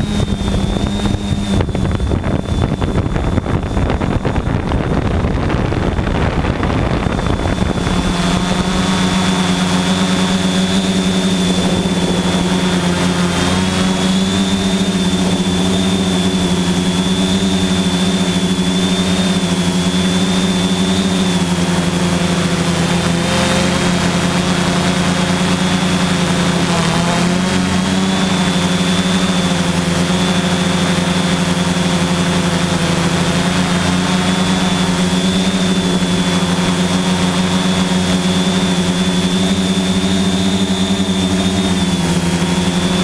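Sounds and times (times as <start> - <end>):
drone propellers humming: 0.0 - 43.0
rough rushing noise: 0.0 - 43.0.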